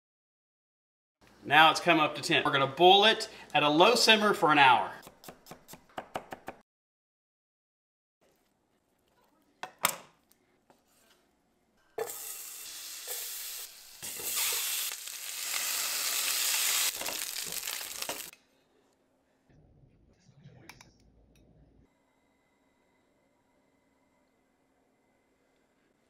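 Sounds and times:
butter and garlic sizzling in pan: 12.0 - 18.4.

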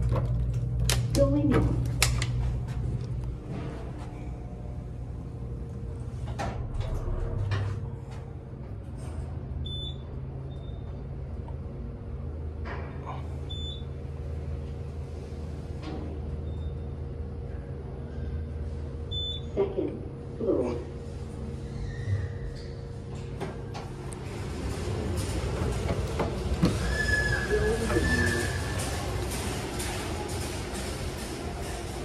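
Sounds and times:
elevator car humming: 0.0 - 32.0
elevator doors sliding shut: 6.1 - 8.1, 23.1 - 32.0.

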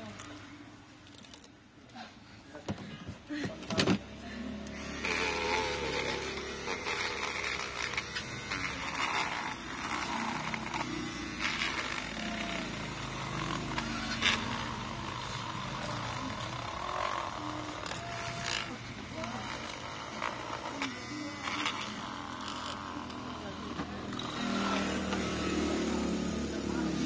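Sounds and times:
electric tool humming: 4.4 - 27.0
metal rod scraping adhesive: 4.8 - 26.1.

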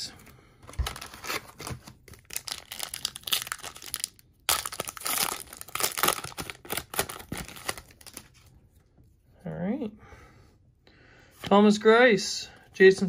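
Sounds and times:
foil wrapper crinkling and tearing: 0.7 - 8.5.

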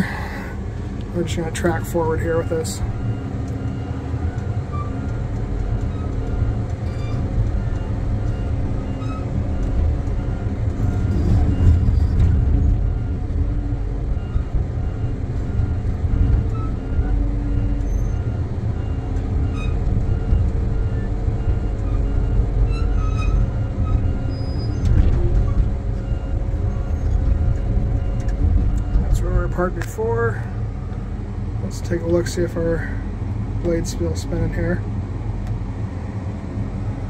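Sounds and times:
diesel engine rumbling under load: 0.0 - 37.0.

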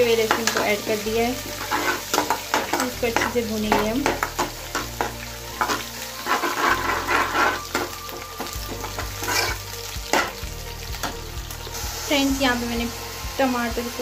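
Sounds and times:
metal spatula scraping pan: 0.0 - 10.4
spices sizzling in hot oil: 0.0 - 14.0.

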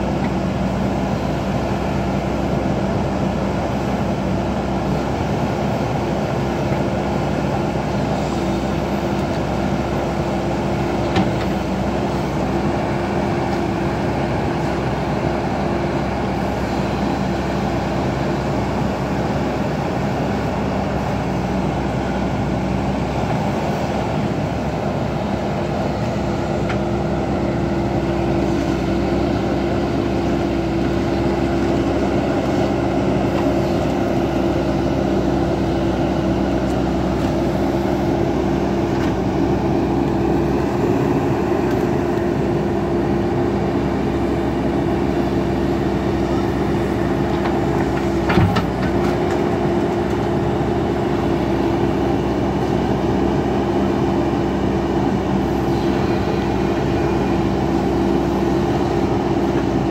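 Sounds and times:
diesel engine running: 0.0 - 59.9
backhoe digging in mud: 25.5 - 59.9.

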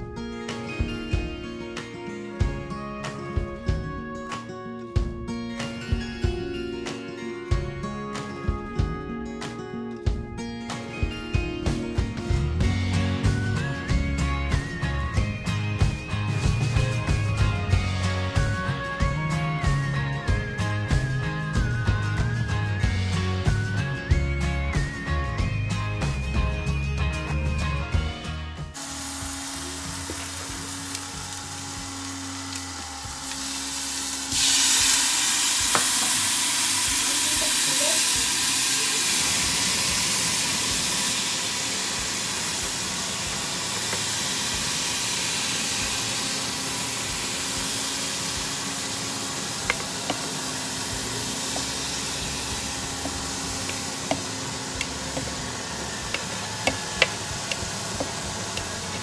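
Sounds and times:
food sizzling in a pot: 28.8 - 59.0.

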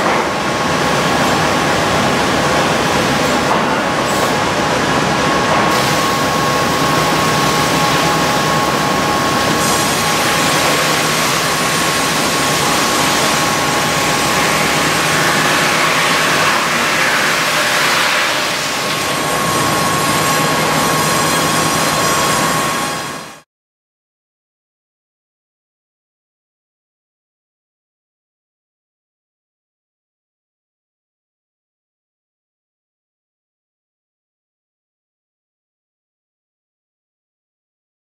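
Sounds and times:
sawmill machinery noise: 0.0 - 23.4
high saw whine: 5.7 - 23.4.

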